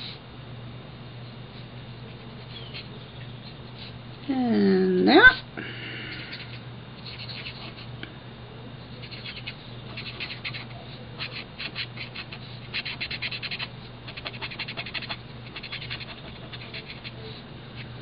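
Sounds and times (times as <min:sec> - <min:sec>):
marker scratching on cardstock: 0:06.4 - 0:07.9, 0:09.0 - 0:17.4.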